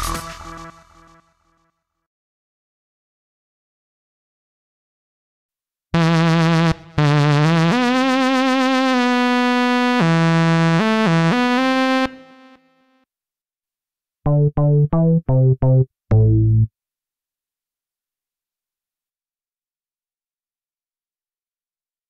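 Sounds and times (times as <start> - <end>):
sawtooth synth lead melody: 6.0 - 12.6, 14.3 - 16.7
short synth bass notes: 14.3 - 16.7.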